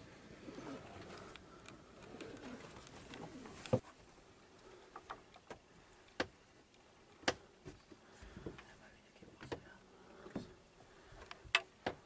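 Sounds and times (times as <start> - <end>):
pigeons cooing: 0.3 - 3.6.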